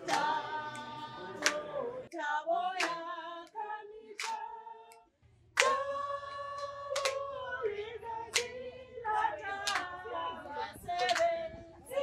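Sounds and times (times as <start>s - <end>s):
sharp hand claps: 0.0s - 1.7s, 2.8s - 3.0s, 4.2s - 4.4s, 5.6s - 5.8s, 6.6s - 7.2s, 8.3s - 8.5s, 9.6s - 10.0s, 10.9s - 11.3s
unaccompanied voices singing: 0.0s - 12.0s.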